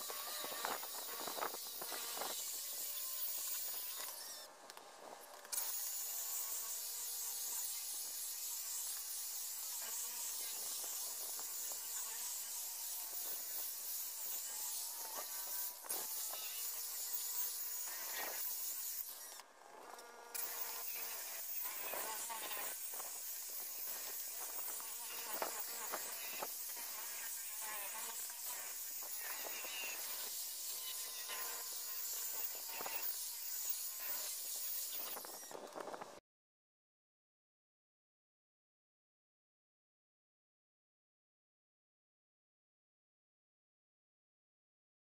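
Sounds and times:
electric polisher hissing: 0.0s - 4.5s, 5.6s - 19.4s, 20.3s - 35.8s
faint motor whine: 0.0s - 36.2s.

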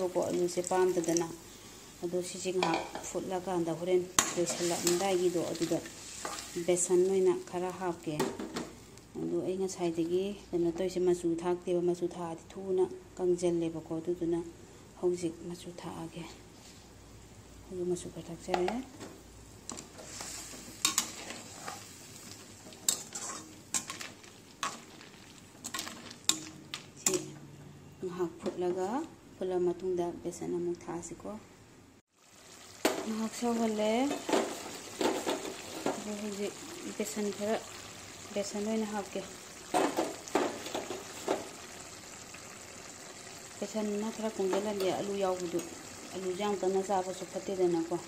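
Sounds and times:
curry sizzling in a wok: 0.0s - 10.2s, 17.4s - 27.4s, 32.1s - 48.0s
metal skimmer scraping a wok: 4.2s - 6.9s, 19.7s - 27.3s
metal ladle stirring: 22.6s - 27.3s.

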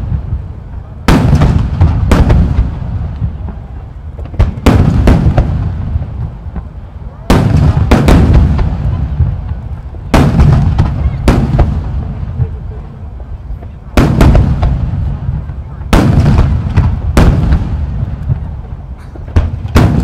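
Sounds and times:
firework shells booming: 0.0s - 12.7s, 13.9s - 20.0s.

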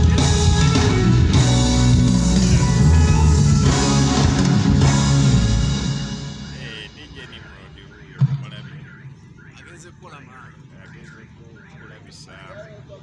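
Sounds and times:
live band playing: 0.0s - 8.7s
drums: 0.0s - 9.6s
guitar: 0.0s - 13.0s.

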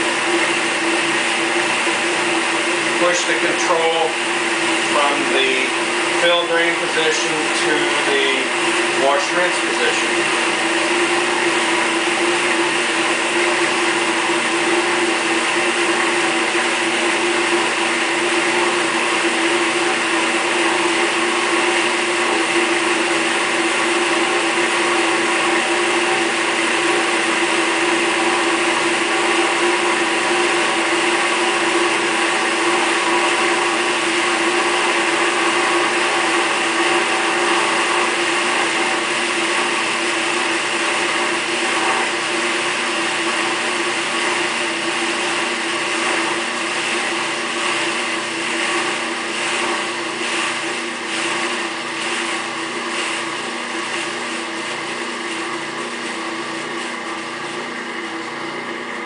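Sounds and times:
dishwasher motor hum: 0.0s - 59.0s
water churning in dishwasher: 0.0s - 59.0s.

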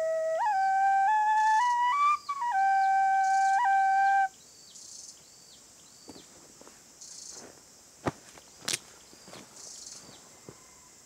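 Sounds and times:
bamboo flute playing: 0.0s - 4.3s
faint high chirping: 0.0s - 6.4s.

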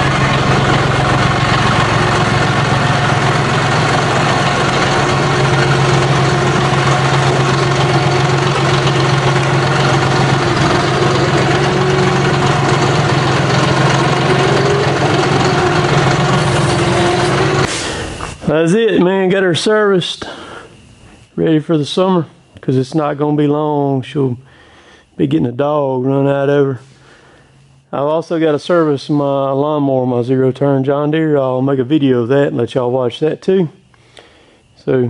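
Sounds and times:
tractor diesel engine idling: 0.0s - 19.8s.

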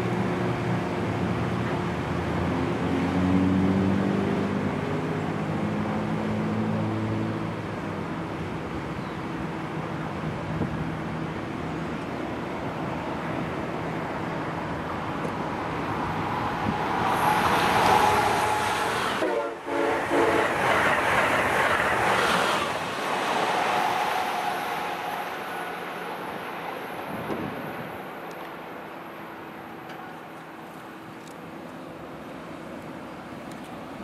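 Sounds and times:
high-speed train passing: 0.0s - 34.0s
train horn: 17.9s - 20.6s.

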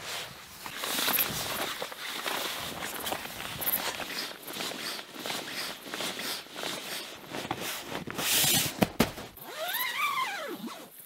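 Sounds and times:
fabric rustling and creaking: 0.0s - 11.0s
drawn-out squeak: 9.4s - 10.8s.

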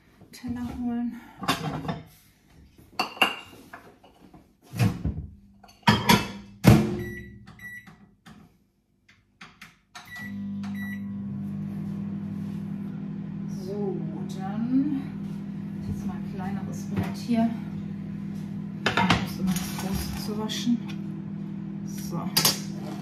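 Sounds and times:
microwave keypad beeps: 7.0s - 7.9s, 10.0s - 11.2s
microwave humming: 10.0s - 23.0s.

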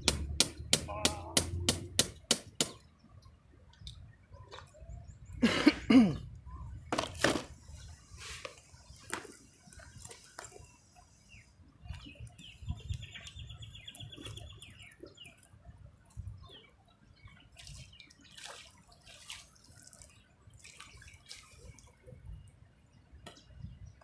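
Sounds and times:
water dripping and splashing: 0.0s - 4.8s, 17.2s - 22.5s
birds chirping: 0.0s - 24.0s.

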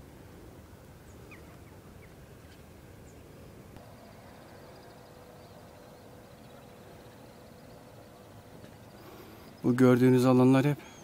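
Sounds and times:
faint steady hum: 0.0s - 11.0s
bird chirps: 1.0s - 9.8s.

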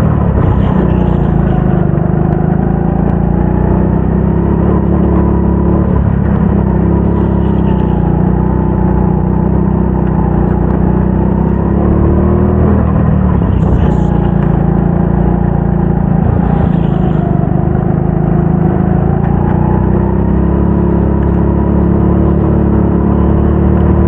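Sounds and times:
go-kart engine running hard: 0.0s - 24.0s.

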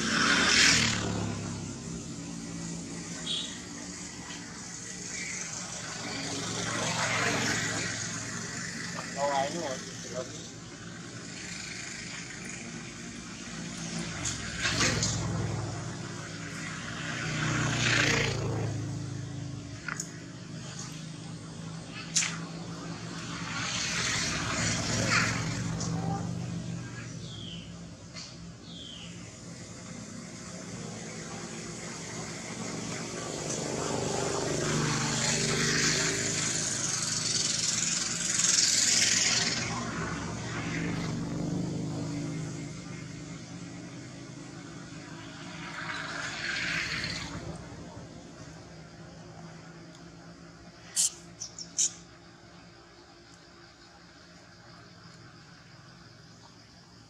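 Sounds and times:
passing vehicle engine: 0.0s - 52.8s
bursts of hiss: 50.8s - 52.0s.

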